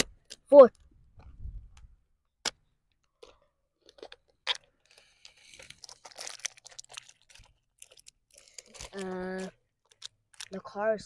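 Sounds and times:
plastic toy car clicking and rattling: 3.2s - 10.6s.

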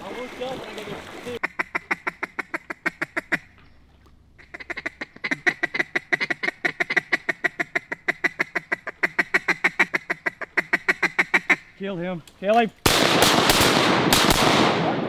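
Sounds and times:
duck call quacks: 1.4s - 3.5s, 4.4s - 11.7s.

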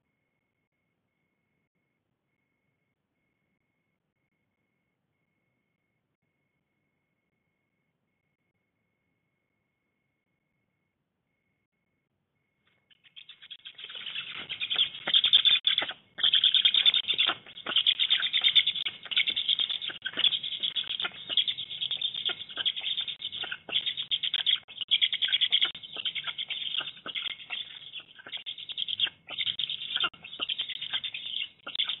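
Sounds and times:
young storks squeaky chatter: 12.9s - 32.0s.

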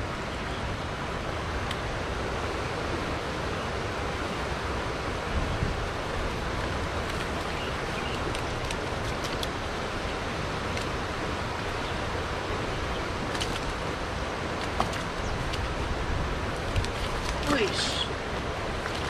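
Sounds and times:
steady rushing outdoor noise: 0.0s - 19.0s
faint light ticks: 1.6s - 1.8s.

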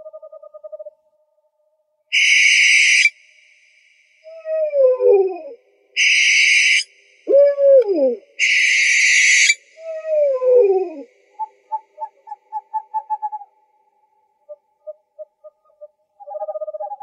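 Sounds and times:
owl hissing screeches: 2.1s - 3.1s, 6.0s - 6.9s, 8.4s - 9.6s
owl falling calls: 2.1s - 3.2s, 6.0s - 13.4s.

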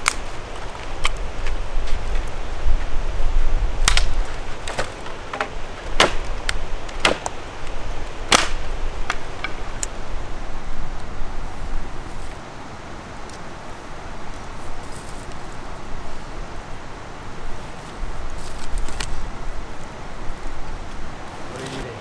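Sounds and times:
dry sticks snapping: 0.0s - 2.4s, 3.8s - 10.0s, 13.2s - 13.5s, 18.3s - 19.3s.

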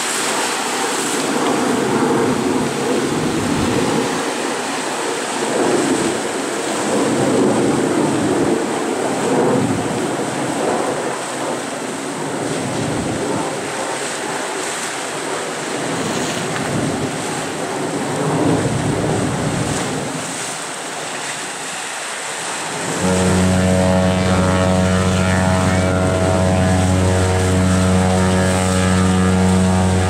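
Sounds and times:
wind buffeting microphone: 0.0s - 21.6s
waves splashing over rocks: 0.0s - 30.0s.

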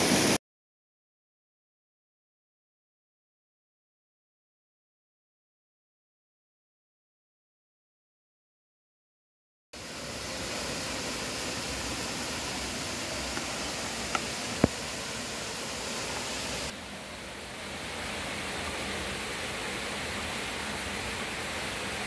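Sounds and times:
stream water rushing: 9.8s - 22.0s.

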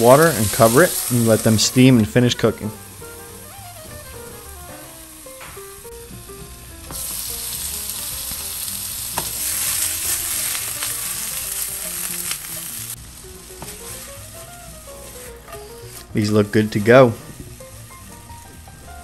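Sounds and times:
loud steam hiss: 0.0s - 1.9s
dumplings sizzling in oil: 0.0s - 16.0s.

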